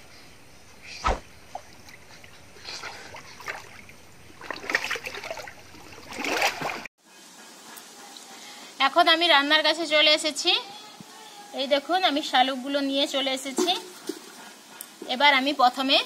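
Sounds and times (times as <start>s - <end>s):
thump: 1.0s - 1.2s
water sloshing and splashing: 1.5s - 6.9s.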